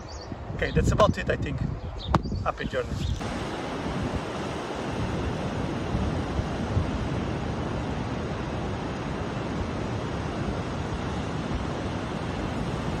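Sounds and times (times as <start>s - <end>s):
wind rumbling on microphone: 0.0s - 13.0s
ocean surf breaking: 3.2s - 13.0s.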